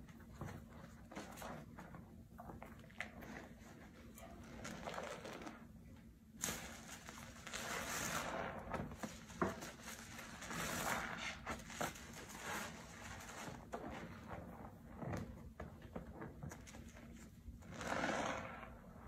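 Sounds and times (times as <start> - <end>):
sponge squelching in soapy water: 6.4 - 15.2, 17.6 - 19.0.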